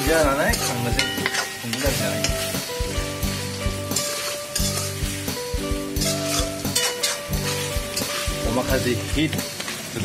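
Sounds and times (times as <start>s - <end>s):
background music: 0.0s - 10.0s
food sizzling: 0.0s - 10.0s
metal ladle scraping a wok: 0.5s - 8.5s.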